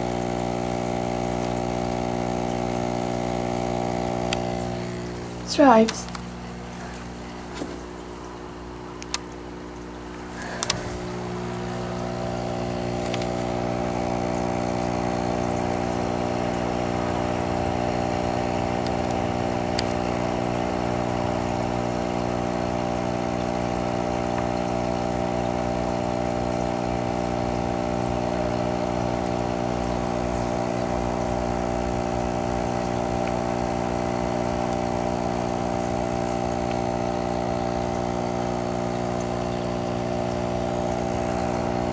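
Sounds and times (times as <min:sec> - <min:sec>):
electric motor hum: 0:00.0 - 0:41.9.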